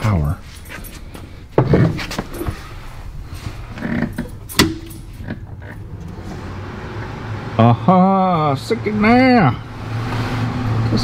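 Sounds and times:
clicks and knocks: 4.0s - 6.1s.

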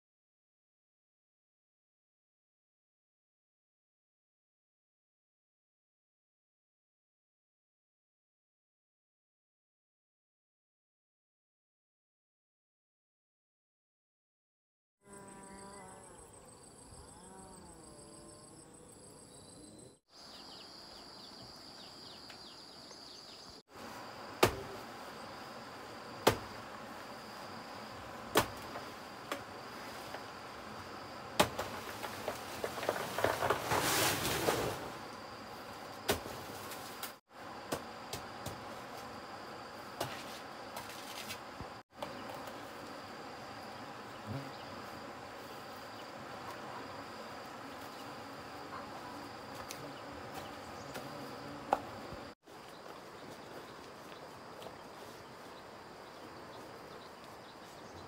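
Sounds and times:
insects buzzing: 15.0s - 58.0s
leaves and stalk rustling: 23.7s - 37.2s, 39.8s - 43.1s, 44.8s - 58.0s
knife chopping banana trunks: 24.4s - 24.8s, 26.2s - 26.6s, 28.3s - 29.5s, 31.4s - 31.8s.

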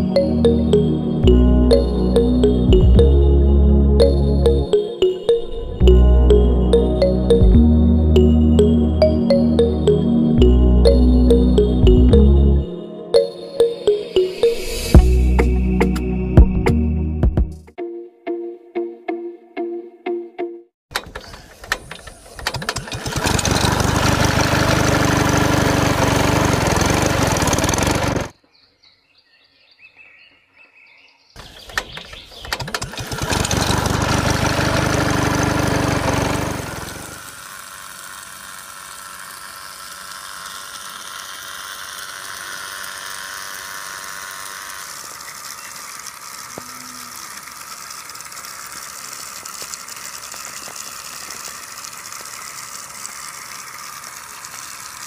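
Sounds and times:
toy water pump motor: 20.9s - 28.4s, 31.4s - 55.0s.

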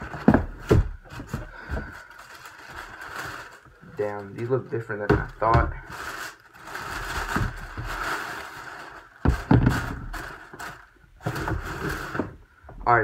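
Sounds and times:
box bumps: 0.0s - 2.0s, 9.2s - 12.4s
paper wrapping rustling: 0.0s - 12.4s.

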